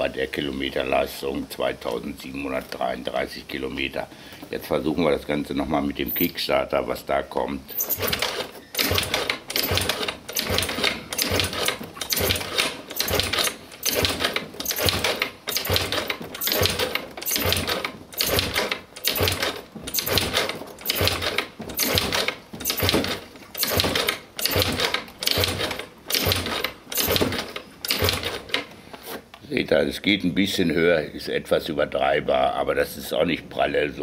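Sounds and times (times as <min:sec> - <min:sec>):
scooter engine kickstarter cranking: 0:07.7 - 0:28.7.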